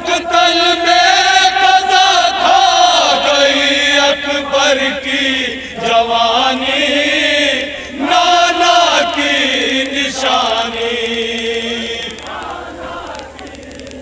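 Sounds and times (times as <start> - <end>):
men chanting a lament: 0.0 - 14.0.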